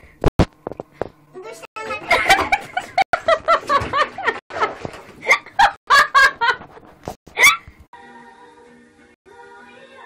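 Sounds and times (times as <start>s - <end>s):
person laughing: 2.0s - 6.7s, 7.3s - 7.6s.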